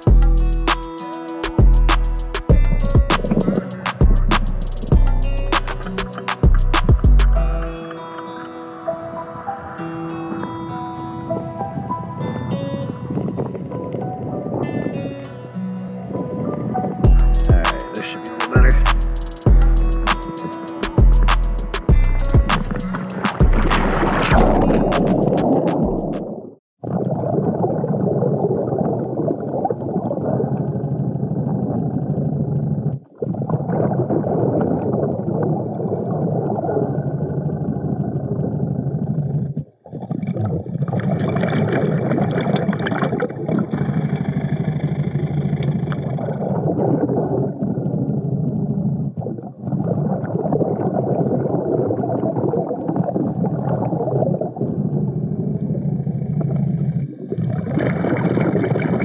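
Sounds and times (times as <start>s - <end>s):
bubbling hiss: 17.4s - 26.2s
underwater rumble of moving water: 23.5s - 25.4s, 26.8s - 59.0s.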